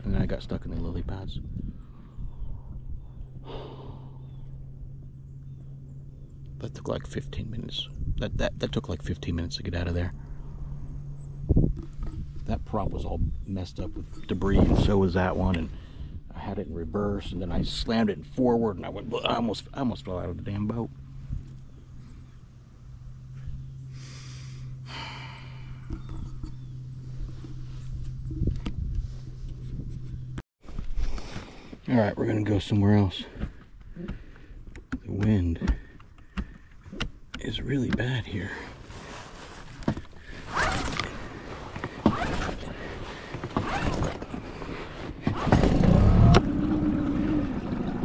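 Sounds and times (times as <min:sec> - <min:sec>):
wind rumbling on microphone: 0:00.0 - 0:05.1, 0:07.4 - 0:09.2, 0:10.2 - 0:18.2, 0:25.6 - 0:31.1
steady low hum: 0:00.0 - 0:48.0
outboard motor idling: 0:01.8 - 0:16.4, 0:17.0 - 0:28.6, 0:39.9 - 0:48.0.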